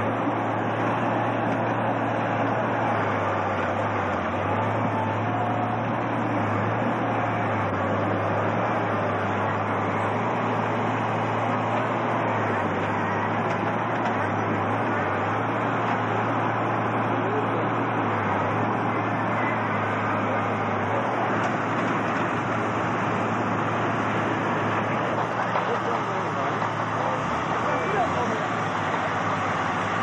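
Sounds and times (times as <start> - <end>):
diesel loader engine: 0.0 - 30.0.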